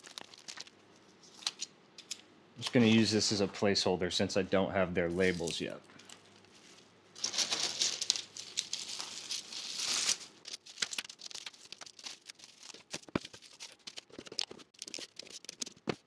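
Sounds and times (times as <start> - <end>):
bubble wrap crinkling: 0.0 - 1.7, 5.2 - 16.0.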